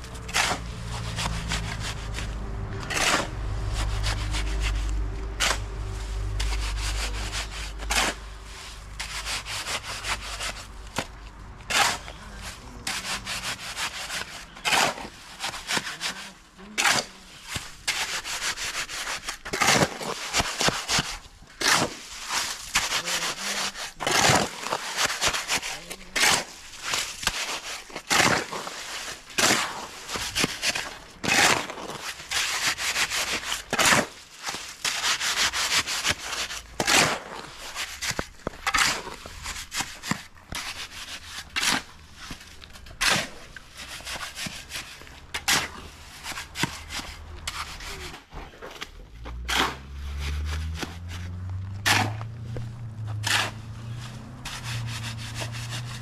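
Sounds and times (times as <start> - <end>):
shovel scraping mortar on ground: 0.0 - 56.0.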